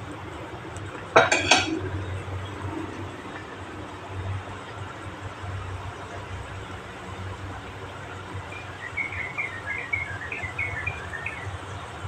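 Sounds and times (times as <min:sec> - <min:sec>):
gas burner rumble: 0:00.0 - 0:09.3
water boiling hard: 0:00.0 - 0:12.0.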